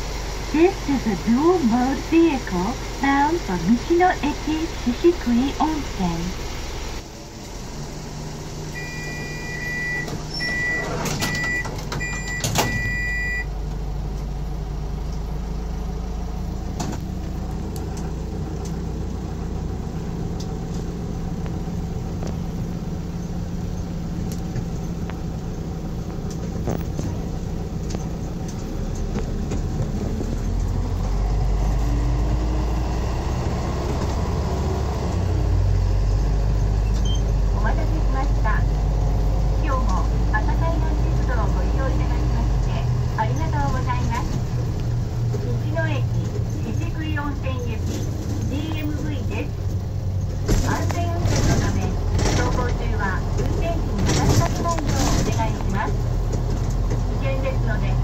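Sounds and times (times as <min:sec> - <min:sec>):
vehicle engine running: 0:00.0 - 0:58.0
door warning chime beeping: 0:08.7 - 0:13.5.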